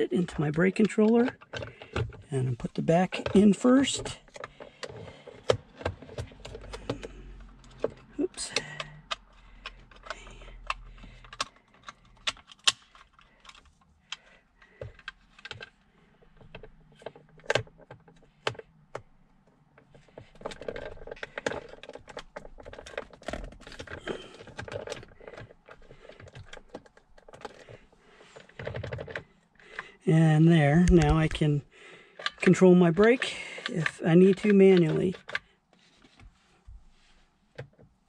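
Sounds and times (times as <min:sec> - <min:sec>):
plastic clicks and knocks: 0:00.3 - 0:19.2, 0:19.8 - 0:30.0, 0:30.6 - 0:31.4.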